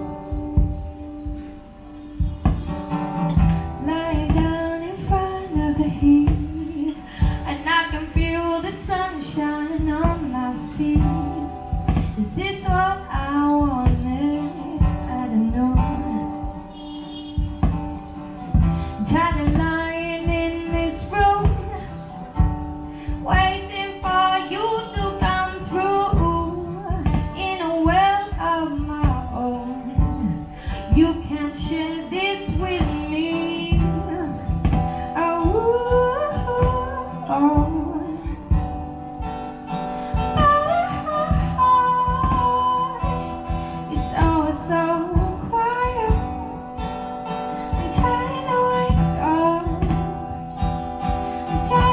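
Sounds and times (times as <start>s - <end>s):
strummed acoustic guitar: 0.0s - 51.9s
woman singing: 2.4s - 51.9s.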